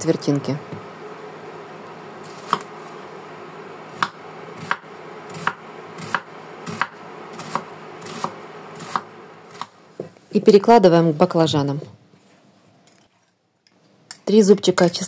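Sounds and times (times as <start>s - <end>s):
knife chopping on wooden board: 2.4s - 2.7s, 4.0s - 9.7s.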